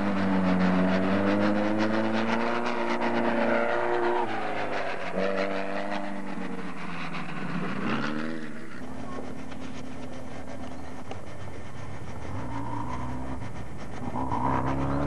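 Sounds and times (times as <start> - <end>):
low engine drone: 0.0 - 15.0
race car engine passing: 0.0 - 15.0.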